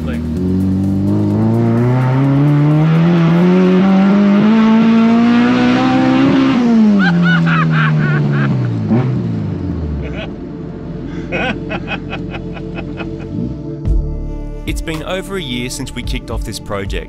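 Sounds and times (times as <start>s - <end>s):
car engine revving: 0.0s - 13.9s
passenger laughing: 6.7s - 9.0s, 9.8s - 13.6s.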